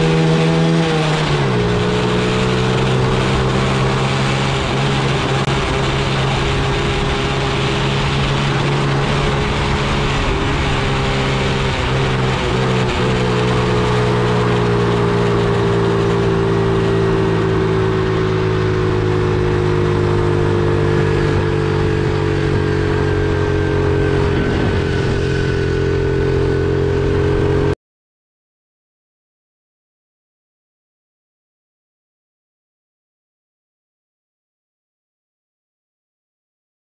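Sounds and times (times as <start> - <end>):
wind rushing: 20.2 - 27.6.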